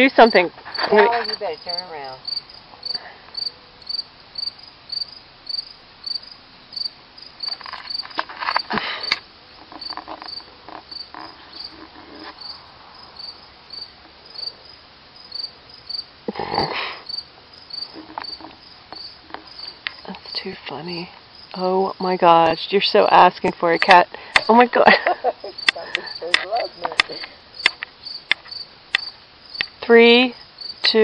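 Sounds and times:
cricket chirping: 0.0 - 31.0.

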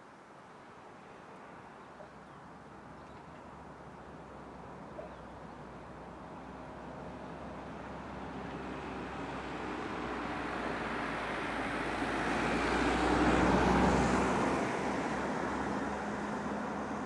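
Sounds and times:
vehicle passing by: 6.5 - 17.0.

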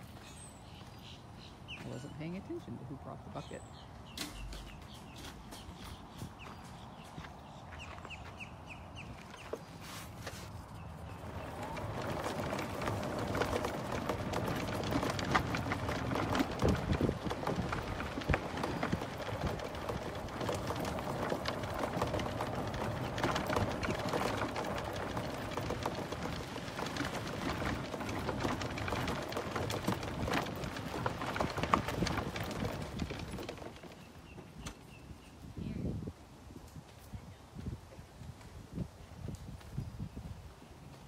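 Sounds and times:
golf cart tyres crunching on dirt: 4.4 - 35.1.

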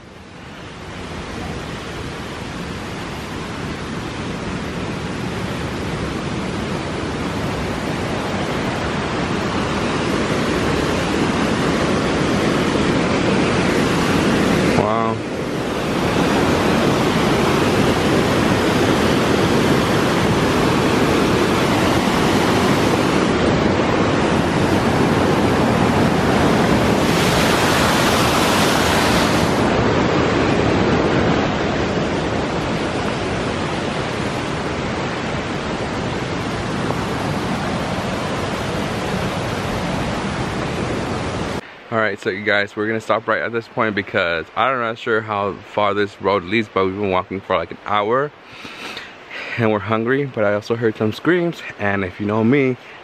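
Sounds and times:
creek rushing over rocks: 0.1 - 53.0.

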